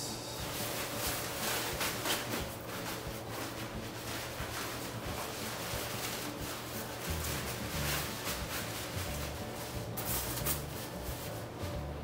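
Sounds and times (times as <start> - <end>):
nylon cover rustling: 0.4 - 12.0.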